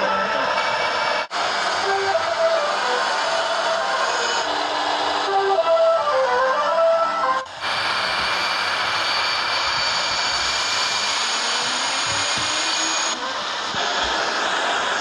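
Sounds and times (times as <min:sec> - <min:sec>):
steady rushing noise: 0:07.5 - 0:15.0.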